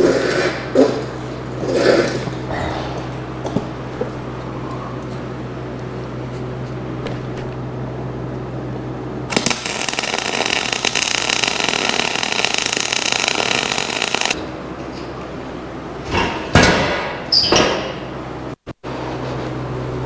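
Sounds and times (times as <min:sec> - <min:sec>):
arc welder crackling: 0:09.3 - 0:14.4.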